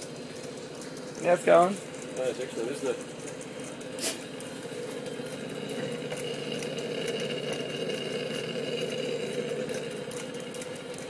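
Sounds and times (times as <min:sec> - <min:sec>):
stirling engine running: 0:00.0 - 0:11.0
gas torch flame: 0:03.9 - 0:10.9.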